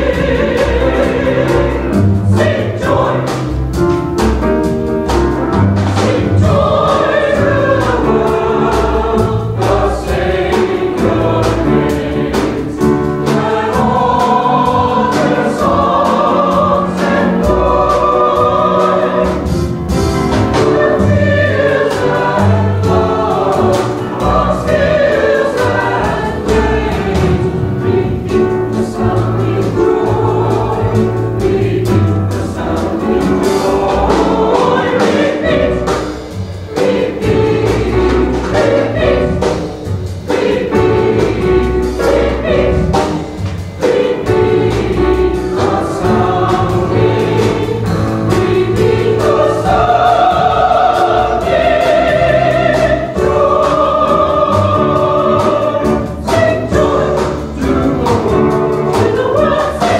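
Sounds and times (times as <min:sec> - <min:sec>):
church choir singing: 0:00.0 - 0:59.9
drum kit: 0:00.0 - 0:59.9
piano: 0:00.0 - 0:59.9.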